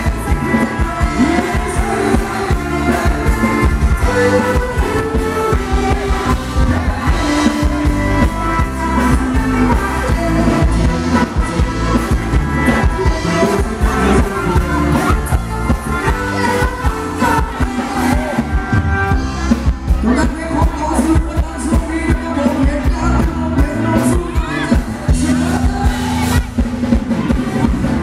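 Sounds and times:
live band playing dance music: 0.0s - 28.0s.

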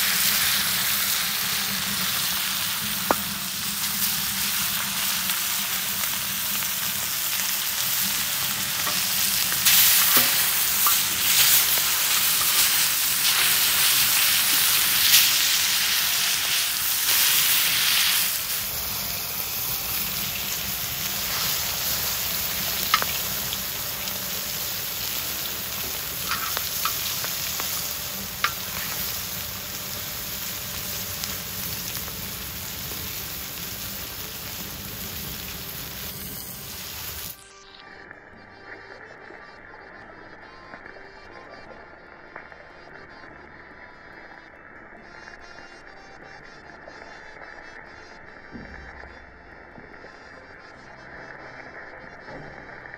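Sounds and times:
meat sizzling on a griddle: 0.0s - 37.4s.

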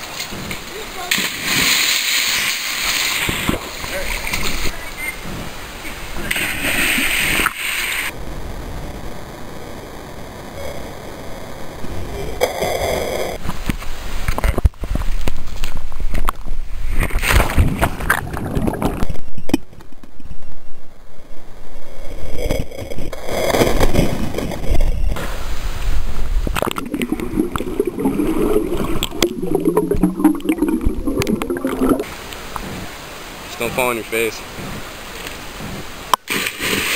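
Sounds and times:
outdoor background: 0.0s - 36.9s
water gurgling underwater: 26.5s - 32.1s.

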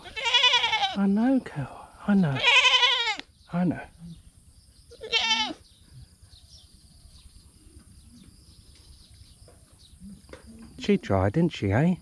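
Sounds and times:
goat bleating: 0.0s - 1.1s, 2.2s - 3.2s, 4.9s - 5.6s.

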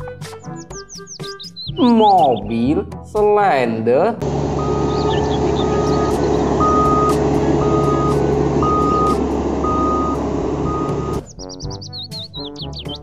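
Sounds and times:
road roller engine running: 4.2s - 11.3s
reversing alarm beeps: 4.6s - 11.3s.

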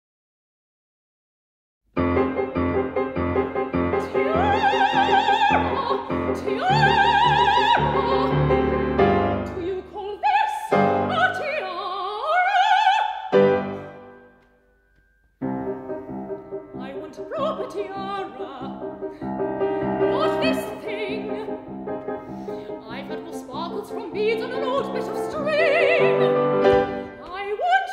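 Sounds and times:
grand piano accompaniment: 1.9s - 12.3s, 13.2s - 27.8s
operatic soprano singing: 3.8s - 13.5s, 16.8s - 19.1s, 19.8s - 21.6s, 22.7s - 27.9s.

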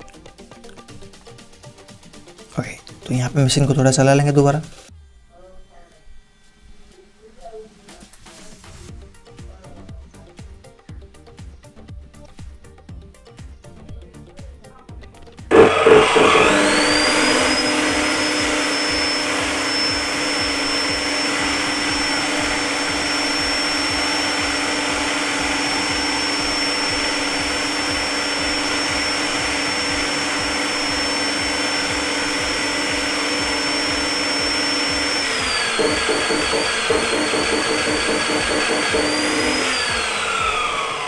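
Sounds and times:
cut-off saw motor whine: 15.5s - 41.0s.

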